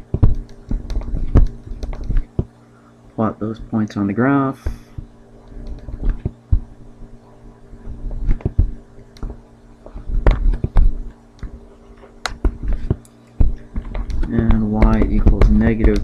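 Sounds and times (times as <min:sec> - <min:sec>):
stylus tapping on pen tablet: 0:00.0 - 0:02.5, 0:04.6 - 0:06.7, 0:07.8 - 0:11.6, 0:12.2 - 0:16.0
steady electrical hum: 0:00.0 - 0:16.0.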